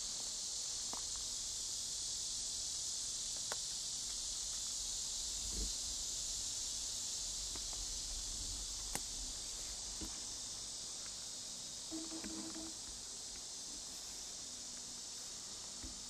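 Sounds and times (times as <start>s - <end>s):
insects chirring: 0.0s - 16.0s
short low tone: 11.9s - 12.8s.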